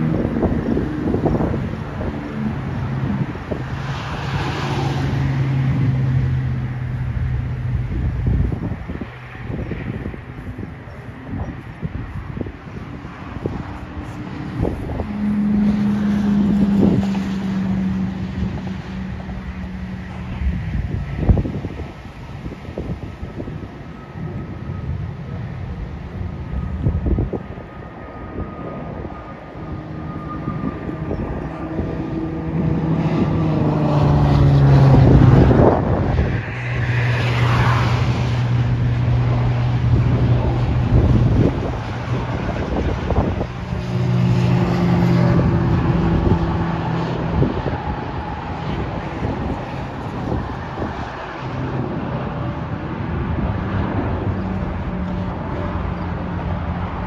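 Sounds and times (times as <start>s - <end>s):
jet airliner passing overhead: 0.0s - 57.0s
low engine rumble: 0.0s - 57.0s
humming tone: 13.4s - 20.9s.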